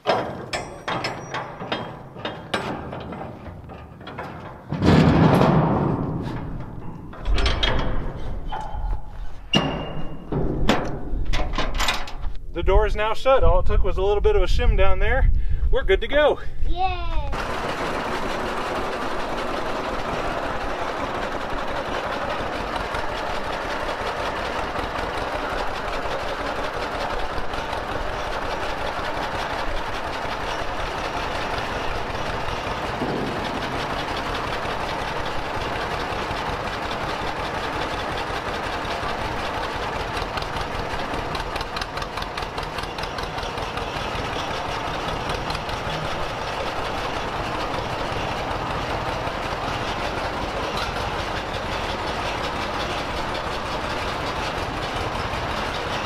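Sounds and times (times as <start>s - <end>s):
tractor engine running: 17.3s - 56.0s.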